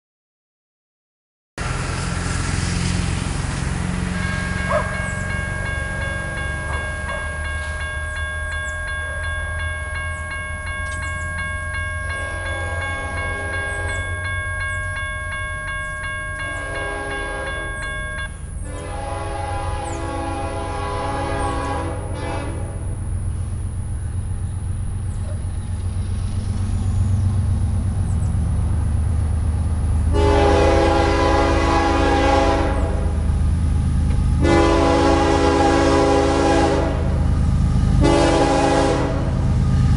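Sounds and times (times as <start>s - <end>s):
low diesel rumble: 1.6s - 39.9s
crossing warning bell ringing: 3.6s - 23.5s, 29.3s - 39.9s
train horn blasts: 12.1s - 14.3s, 16.4s - 18.0s, 18.6s - 23.0s, 30.1s - 33.3s, 34.3s - 39.5s.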